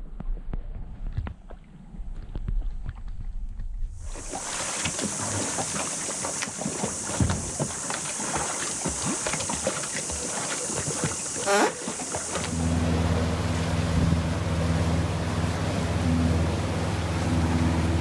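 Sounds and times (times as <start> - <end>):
water lapping and splashing: 4.0 - 18.0.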